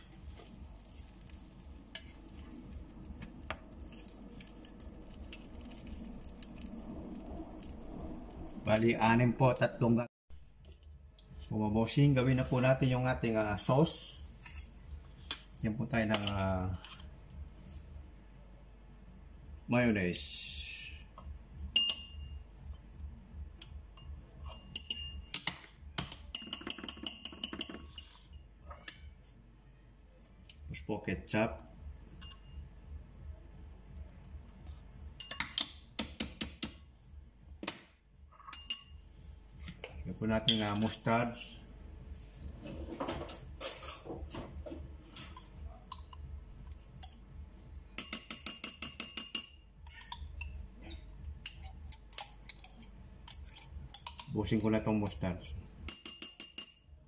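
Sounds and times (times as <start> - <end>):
metal spoon clinking in ceramic bowl: 21.7 - 22.4, 23.9 - 25.5, 26.3 - 28.4, 32.1 - 32.6, 35.2 - 35.6, 38.3 - 39.0, 48.0 - 50.6, 51.2 - 54.4, 55.8 - 57.0.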